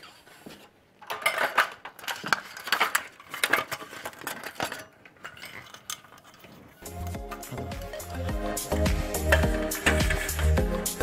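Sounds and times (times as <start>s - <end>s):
table slats clattering: 9.2s - 10.6s.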